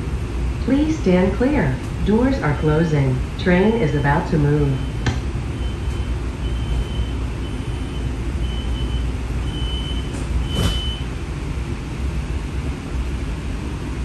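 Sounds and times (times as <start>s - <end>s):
streetcar cabin rumble: 0.0s - 14.0s
high-pitched warning beep: 5.6s - 11.0s.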